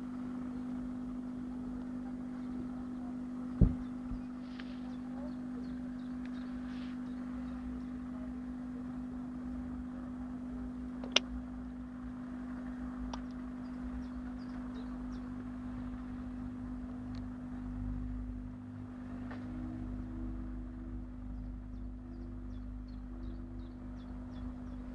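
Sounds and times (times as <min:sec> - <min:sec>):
steady low hum: 0:00.0 - 0:24.9
sharp click: 0:11.0 - 0:11.3.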